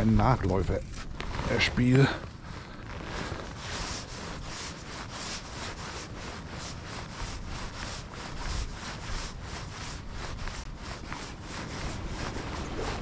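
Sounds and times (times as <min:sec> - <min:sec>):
fly line rubbing through rod guides: 0:02.8 - 0:13.0.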